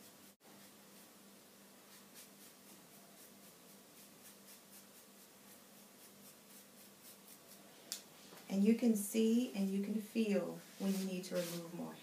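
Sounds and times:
razor comb scratching through hair: 1.9s - 7.7s.

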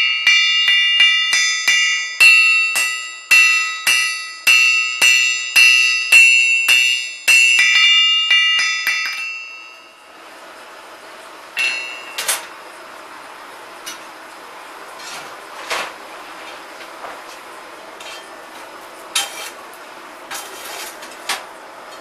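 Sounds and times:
hammer striking iron on anvil: 0.0s - 10.0s, 11.6s - 12.5s
metal clinks: 0.0s - 10.0s, 11.6s - 12.4s.

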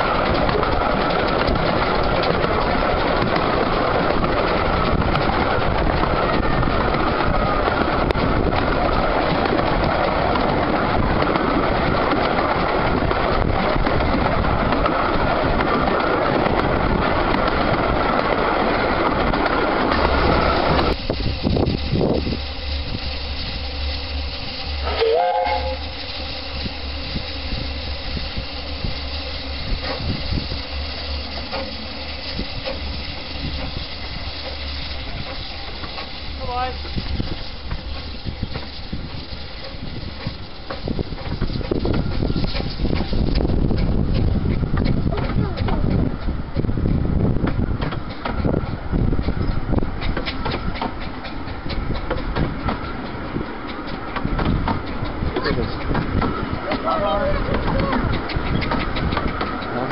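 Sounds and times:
train running noise: 0.0s - 59.9s
steam locomotive whistle: 24.8s - 26.4s.

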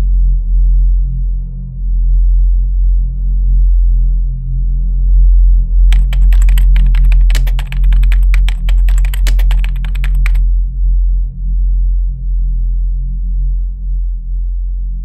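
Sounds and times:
rapid keyboard typing: 5.9s - 10.4s.

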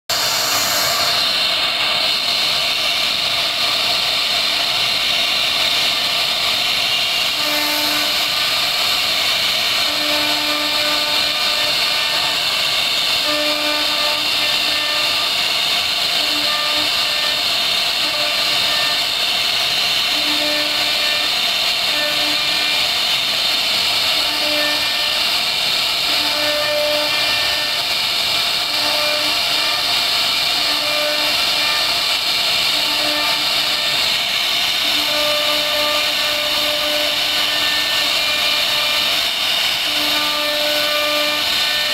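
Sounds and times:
router spindle whine: 7.3s - 25.2s, 25.9s - 27.9s, 32.7s - 41.9s.

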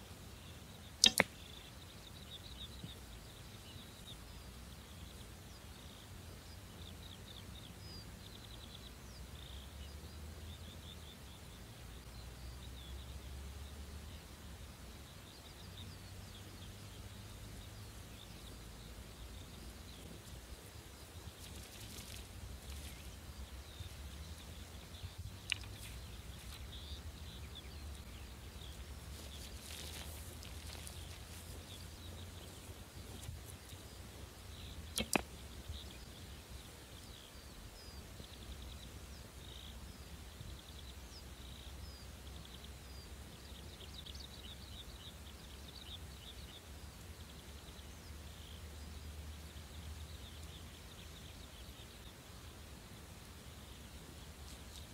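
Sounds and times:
bow string snap: 1.0s - 1.4s, 34.9s - 35.3s
high chirping: 1.0s - 1.6s, 21.3s - 33.9s, 34.6s - 36.2s.

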